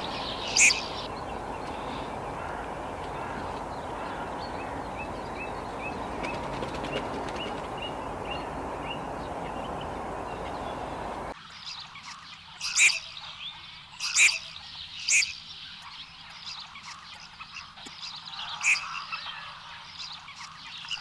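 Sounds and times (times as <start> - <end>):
harsh duck calls: 0.0 - 11.3
outdoor background noise: 0.0 - 21.0
songbird chirping: 0.0 - 21.0.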